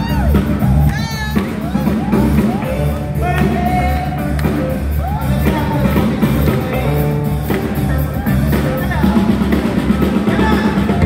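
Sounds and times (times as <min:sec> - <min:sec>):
live soul band playing: 0:00.0 - 0:11.0.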